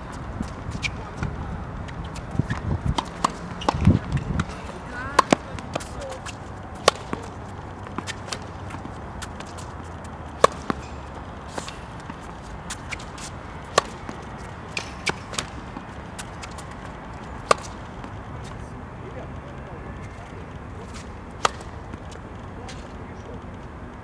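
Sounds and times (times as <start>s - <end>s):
footsteps on court: 0.0s - 24.0s
ball bouncing: 0.1s - 18.6s, 19.9s - 23.0s
tennis racket hitting ball: 0.1s - 18.6s, 19.8s - 23.1s.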